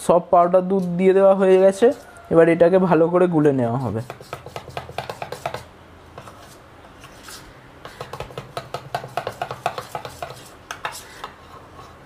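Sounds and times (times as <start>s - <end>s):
spoon scraping steel bowl: 3.8s - 12.0s.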